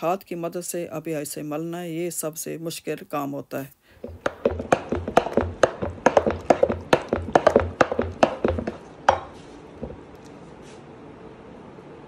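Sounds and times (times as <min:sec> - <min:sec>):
wooden masher pounding thick mash: 0:04.0 - 0:10.1.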